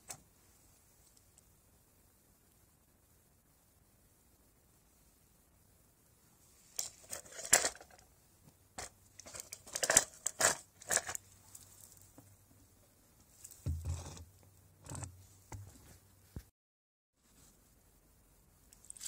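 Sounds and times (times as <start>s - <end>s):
small metal parts clinking: 6.8s - 8.0s, 8.8s - 12.1s.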